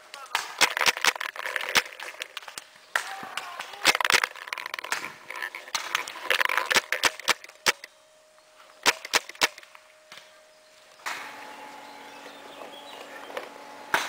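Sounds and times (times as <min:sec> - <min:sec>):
paintball markers firing: 0:00.2 - 0:07.9, 0:08.8 - 0:09.7.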